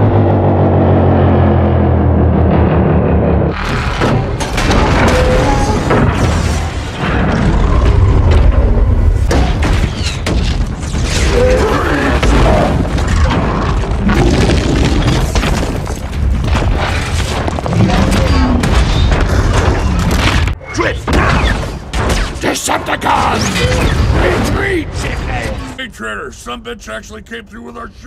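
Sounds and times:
explosions: 0.0 - 22.4
booms: 0.0 - 22.5
crashing debris: 3.6 - 20.6.

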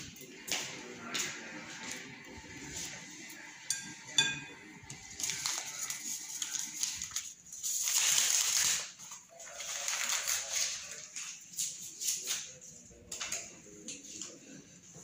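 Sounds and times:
whisk clinking on glass bowl: 3.7 - 4.6
paper sachets rustling and tearing: 5.1 - 12.7.

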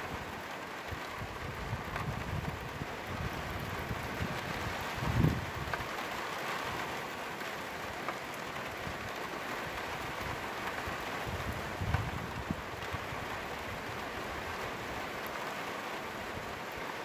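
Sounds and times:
rain falling on a flat roof: 0.0 - 17.0
wind buffeting microphone: 0.9 - 5.8, 11.2 - 14.0.

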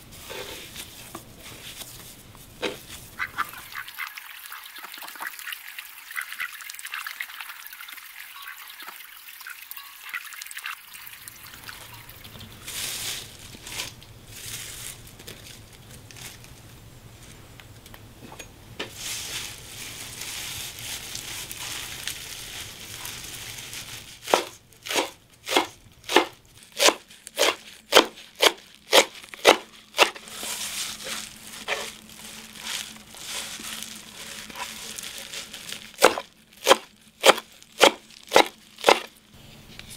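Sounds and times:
greens rustling in a bowl: 0.0 - 5.5, 11.4 - 17.4, 18.9 - 39.9
ducks splashing in water: 3.2 - 7.6
knife chopping against clay bowl: 24.4 - 30.2, 36.0 - 39.1.

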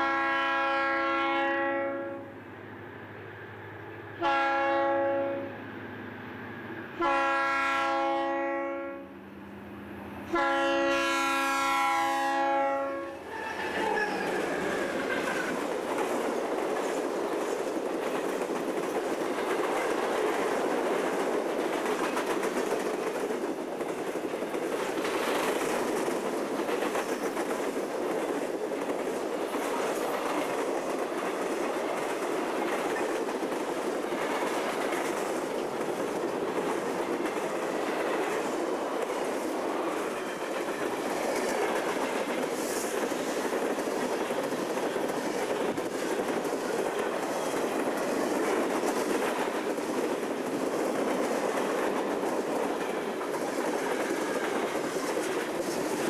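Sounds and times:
train air horn blasts: 0.0 - 2.4, 4.2 - 5.6, 7.0 - 9.2, 10.3 - 14.2
freight train rumble and clatter: 0.0 - 56.0.

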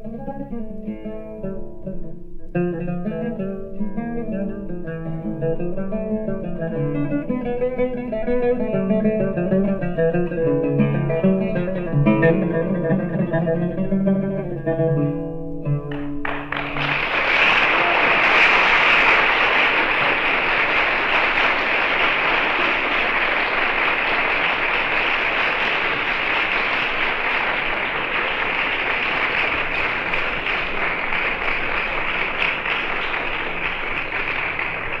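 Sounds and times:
audience applauding: 15.9 - 35.0.

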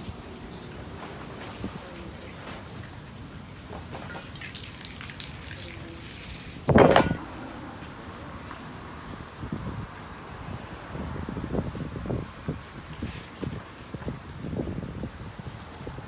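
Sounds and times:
spray-paint cans clinking and rattling: 0.5 - 0.9, 3.7 - 7.3.

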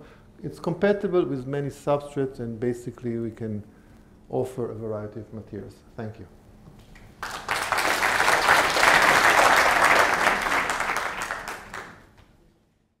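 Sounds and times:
audience applauding: 7.2 - 12.2.

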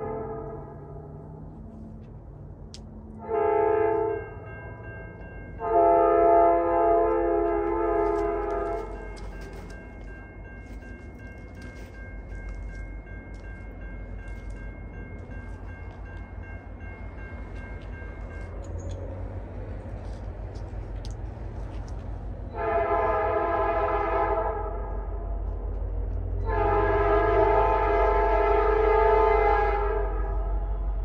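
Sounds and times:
locomotive air horn blasts: 0.0 - 0.9, 3.2 - 4.3, 5.6 - 9.1, 22.5 - 25.0, 26.4 - 31.0
train rumble: 0.0 - 31.0.

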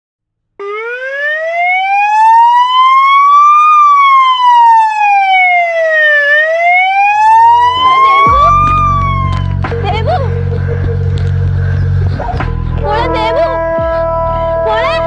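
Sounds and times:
siren wailing: 0.6 - 9.6.

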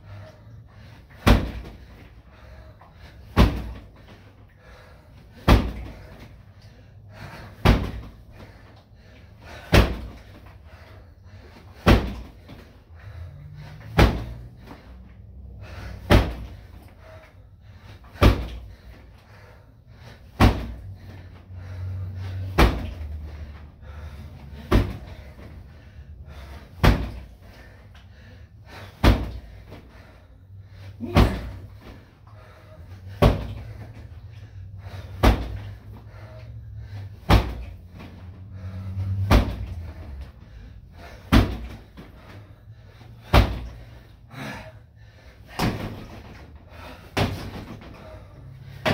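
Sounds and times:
hits thudding on training dummy: 1.2 - 1.7, 14.0 - 14.3, 16.1 - 16.5, 18.2 - 18.5, 20.4 - 20.8, 22.6 - 22.9, 26.8 - 27.2, 29.0 - 29.4, 35.2 - 35.6, 37.3 - 37.6, 41.3 - 41.8, 43.3 - 43.7.

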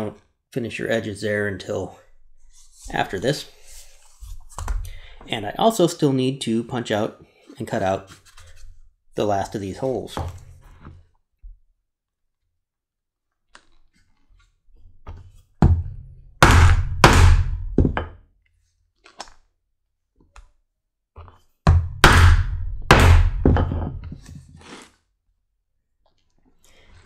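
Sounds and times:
mallet striking leather punch: 15.6 - 18.2, 21.7 - 24.1.

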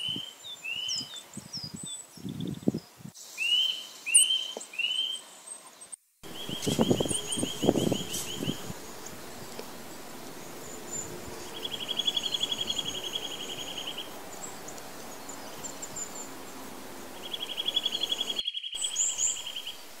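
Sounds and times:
bird trilling whistled notes: 3.4 - 5.2, 6.3 - 9.0, 10.6 - 16.6, 17.2 - 19.8.

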